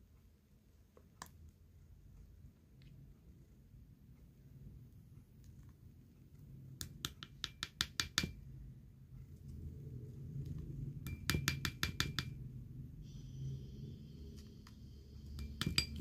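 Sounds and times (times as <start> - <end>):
plastic spoon clinking glass bowl: 11.1 - 12.4, 15.4 - 16.0.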